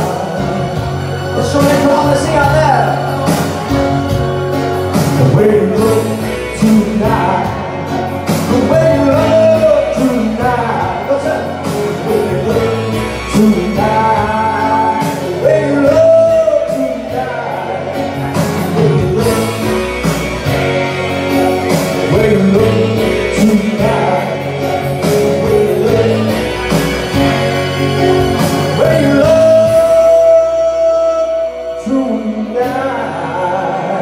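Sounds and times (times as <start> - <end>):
instrumental accompaniment: 0.0 - 34.0
man singing into microphone: 0.0 - 34.0.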